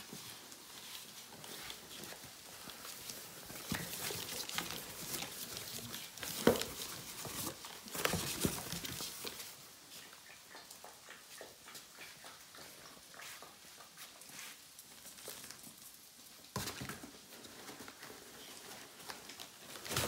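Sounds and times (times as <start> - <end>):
cardboard box rustling and scraping: 3.6 - 9.4.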